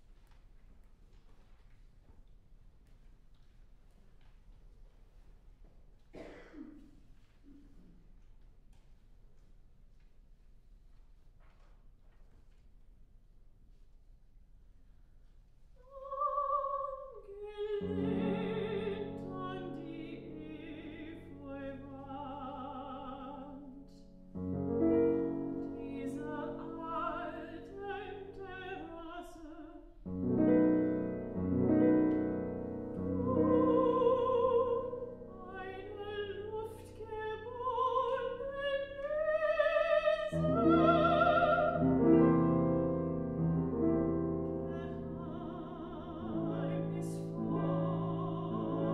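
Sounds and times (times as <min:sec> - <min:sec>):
soprano singing: 0:15.8 - 0:48.9
grand piano accompaniment: 0:17.4 - 0:48.9.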